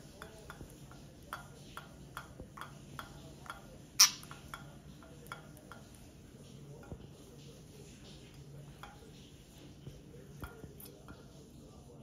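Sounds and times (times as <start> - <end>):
beak tapping plastic ball: 0.2 - 6.0.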